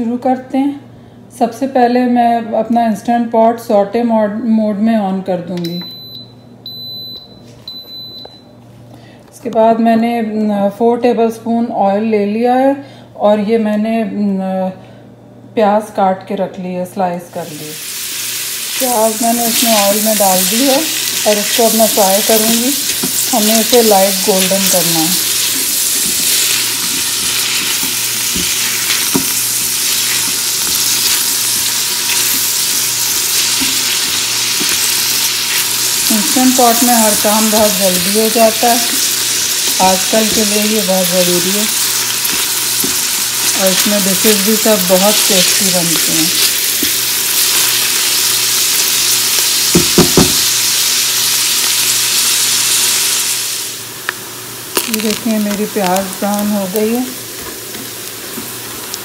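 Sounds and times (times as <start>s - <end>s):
onions sizzling in hot oil: 17.5s - 59.0s
spatula knocking a pot: 49.7s - 50.4s.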